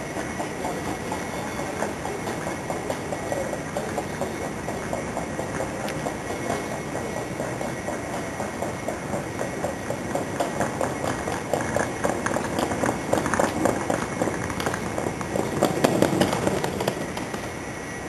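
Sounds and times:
train wheels clattering on track: 0.0 - 17.9.

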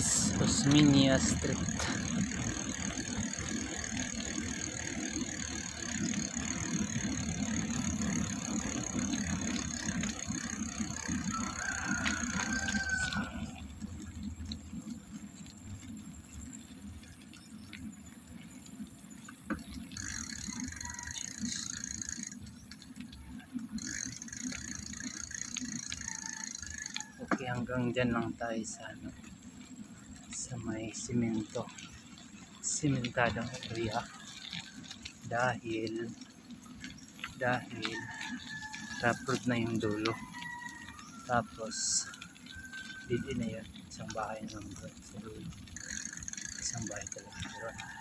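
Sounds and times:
bicycle tyre road noise: 0.0 - 48.0
bike rattling: 0.0 - 48.0.

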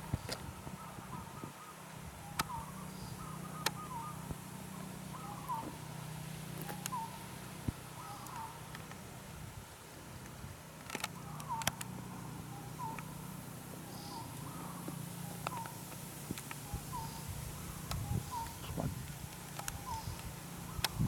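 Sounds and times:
bird calling: 0.0 - 9.2, 10.9 - 21.0
steady low hum: 0.0 - 21.0
sharp clicks: 10.8 - 11.9, 17.9 - 21.0.

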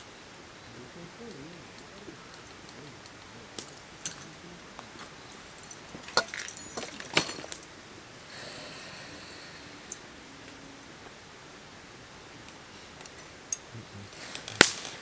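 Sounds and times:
tableware clinking and clattering: 5.3 - 7.6.

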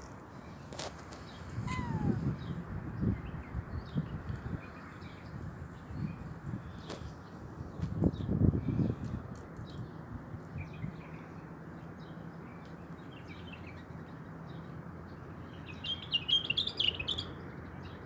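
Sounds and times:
small birds chirping: 0.4 - 18.0.

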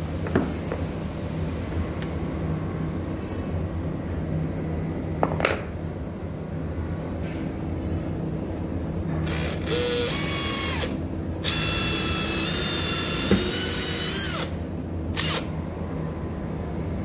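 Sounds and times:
drill motor whine: 9.2 - 15.5.

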